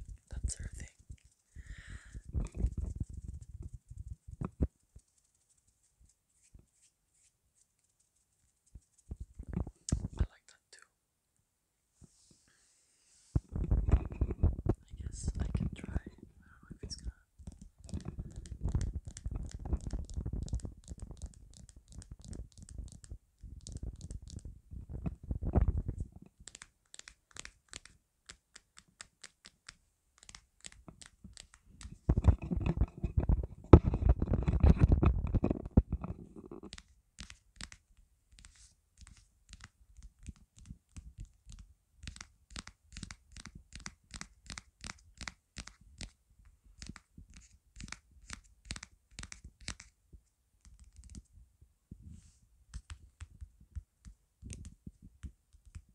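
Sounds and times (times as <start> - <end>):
microphone rubbing and handling: 0.0 - 7.3, 8.6 - 10.3, 12.0 - 26.4, 30.7 - 37.4, 45.8 - 55.9.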